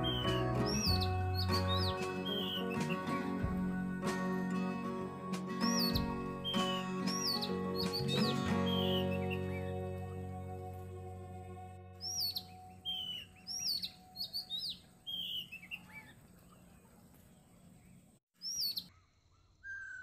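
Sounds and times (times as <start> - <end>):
birds chirping: 0.0 - 4.1, 5.5 - 10.8, 12.0 - 18.9
soft background music: 0.0 - 15.3.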